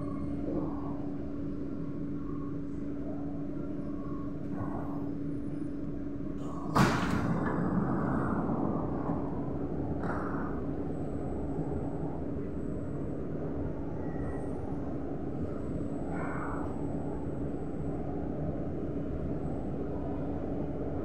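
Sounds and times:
train electrical hum: 0.0s - 21.0s
train doors sliding open clunk: 6.4s - 7.7s.

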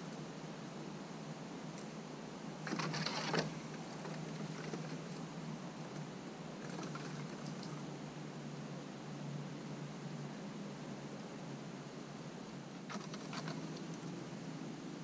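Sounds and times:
steady hiss: 0.0s - 15.0s
squirrel claws scratching on wood: 2.6s - 5.3s, 12.9s - 14.2s.

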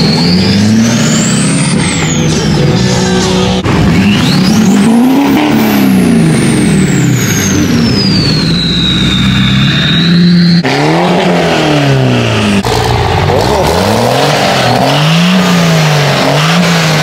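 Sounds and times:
turbo whistle: 0.0s - 2.5s, 3.9s - 5.5s, 7.0s - 11.1s
diesel engine revving: 0.0s - 17.0s
engine revving up and down: 0.0s - 17.0s.

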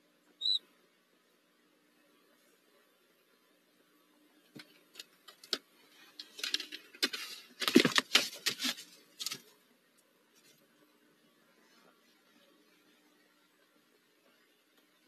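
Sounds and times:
talons scraping and bumping on wood: 4.6s - 9.5s.

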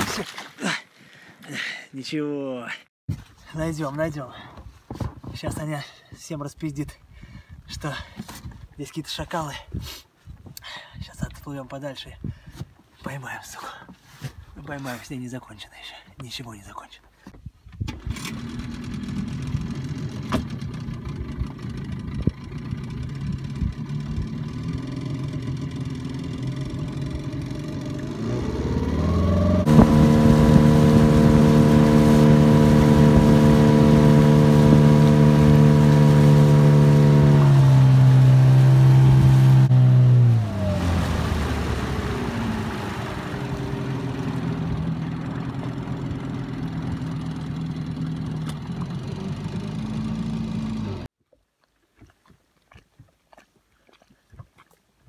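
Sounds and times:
small outboard motor running: 17.9s - 51.1s.

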